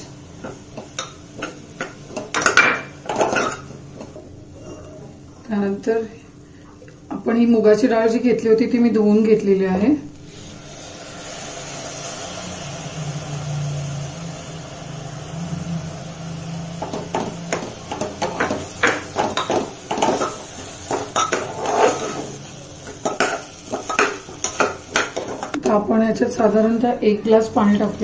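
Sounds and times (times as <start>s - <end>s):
steady hiss: 10.2s - 25.5s
metal spoon scraping a pot: 20.9s - 22.3s.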